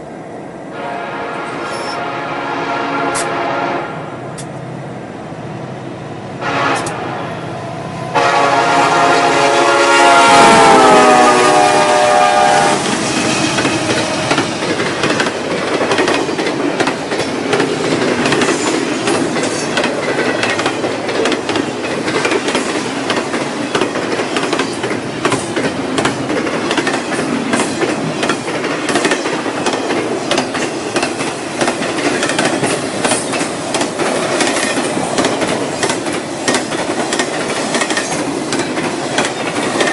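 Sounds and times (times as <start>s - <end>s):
train air horn: 0.7s - 4.2s, 6.4s - 7.5s, 8.1s - 14.6s
train wheels clacking over rail joints: 10.1s - 39.9s.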